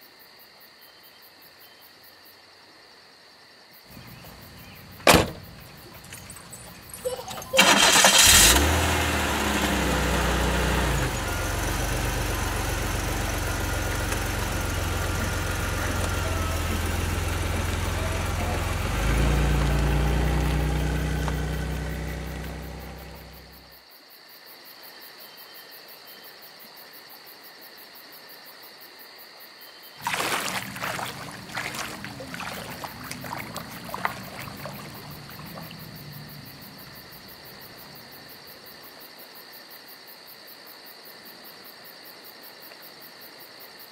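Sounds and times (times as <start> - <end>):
crickets chirring: 0.0 - 43.9
water splashing: 3.9 - 23.6, 30.0 - 38.2
car engine idling: 3.9 - 23.7, 30.0 - 38.3.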